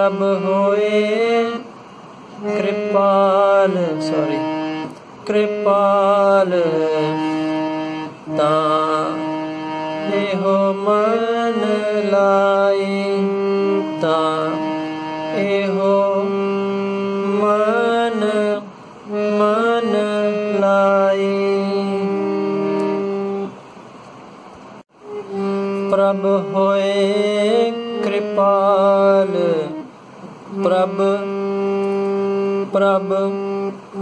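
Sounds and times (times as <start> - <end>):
harmonium melody: 0.0 - 23.6, 25.0 - 29.9, 30.5 - 34.0.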